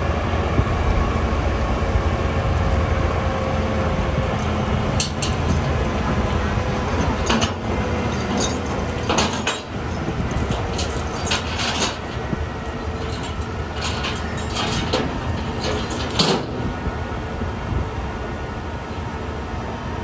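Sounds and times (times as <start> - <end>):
heavy vehicles idling: 0.0 - 20.0
metallic clanks and rattles: 4.4 - 16.7.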